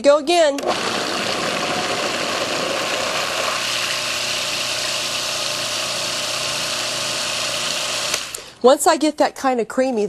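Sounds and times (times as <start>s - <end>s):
food processor running: 0.6s - 8.5s.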